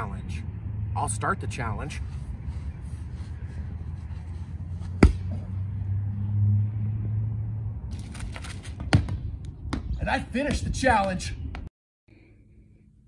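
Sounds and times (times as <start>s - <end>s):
rubber ball thump: 5.0s - 5.4s.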